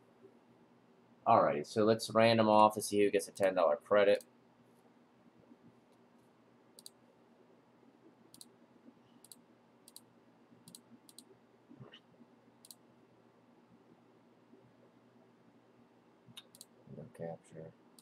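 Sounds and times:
computer mouse clicks: 6.8s - 7.0s, 8.3s - 8.5s, 9.2s - 12.0s, 16.3s - 16.7s.

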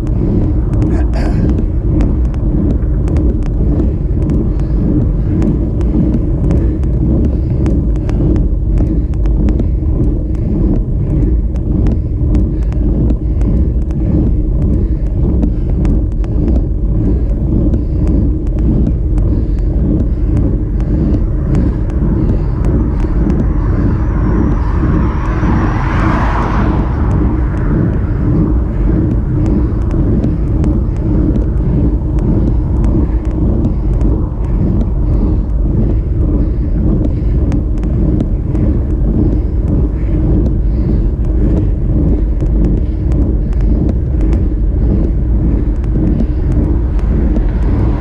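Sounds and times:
road rumble: 0.0s - 48.0s
small ticks: 0.0s - 48.0s
wind on microphone: 0.0s - 48.0s
car passing: 21.2s - 36.9s, 45.8s - 48.0s.

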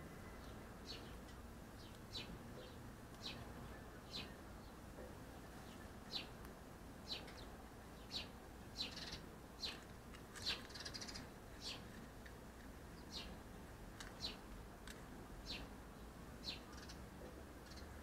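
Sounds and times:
bird chirping: 0.0s - 6.4s, 7.0s - 12.0s, 12.9s - 13.4s, 14.1s - 14.5s, 15.4s - 17.0s, 17.6s - 18.0s.

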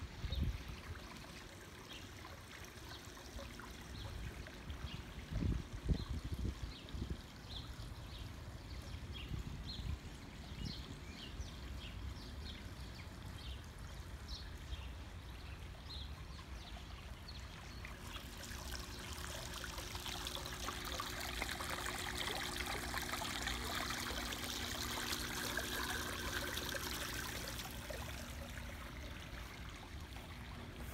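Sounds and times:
fountain water trickling: 0.0s - 30.9s.

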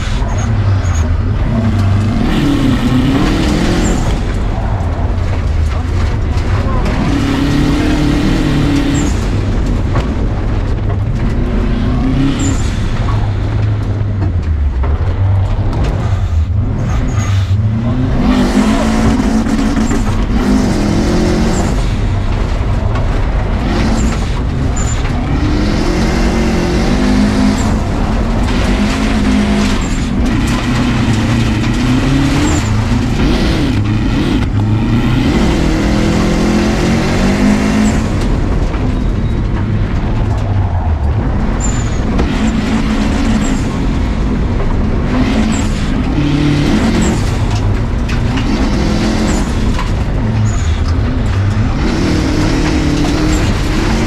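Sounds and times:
rally car engine revving: 0.0s - 54.0s
tires on loose dirt: 0.0s - 54.0s.

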